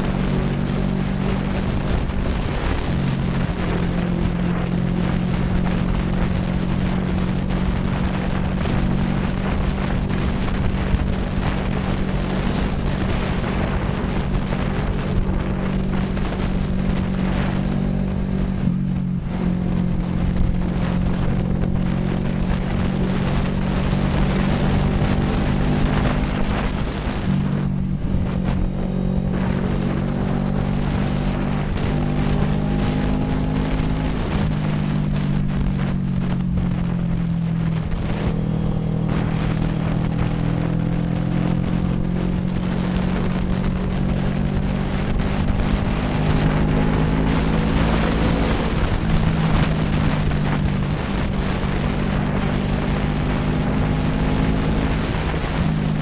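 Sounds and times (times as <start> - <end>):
motorcycle engine running: 0.0 - 56.0
wind on microphone: 0.0 - 56.0.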